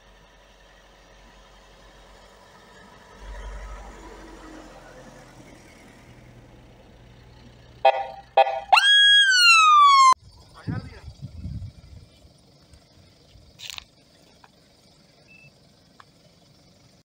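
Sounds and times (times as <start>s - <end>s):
faint low engine rumble: 0.0s - 17.0s
siren horn blasts: 7.8s - 10.2s
siren whoop: 8.4s - 10.2s.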